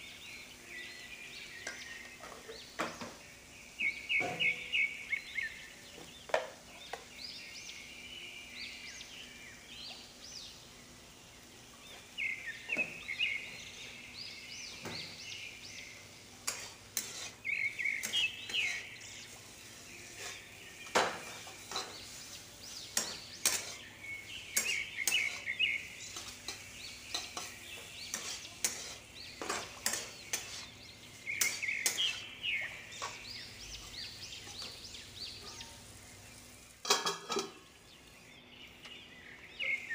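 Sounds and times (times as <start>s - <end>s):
metal spatula scraping pan: 16.4s - 20.6s, 21.2s - 23.9s, 24.6s - 32.2s.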